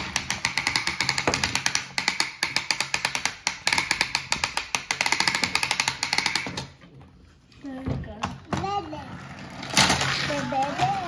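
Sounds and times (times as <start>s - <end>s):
toy race track clicking: 9.5s - 11.0s.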